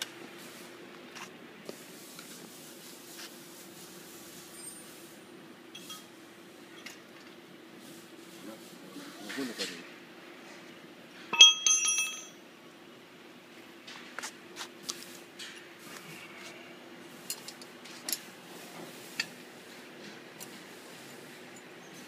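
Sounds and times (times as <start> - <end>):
ringing metallic clink: 5.8 - 6.2, 11.3 - 12.4
bolts and nuts clicking: 11.4 - 12.4.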